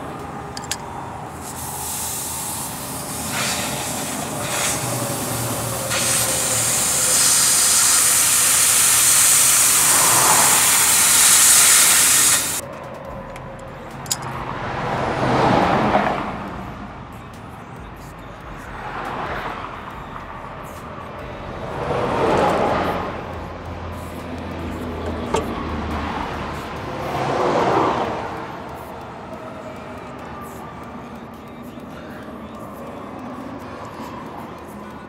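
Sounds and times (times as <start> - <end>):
passing highway traffic: 0.0 - 35.0
compressed air hissing: 0.5 - 12.6.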